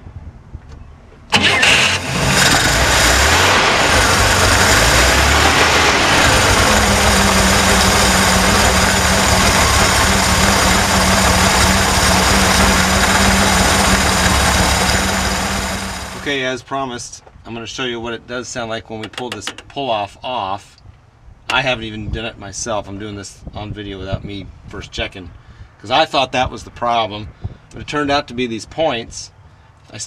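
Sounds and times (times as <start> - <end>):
car engine cranking and running: 1.3 - 16.3.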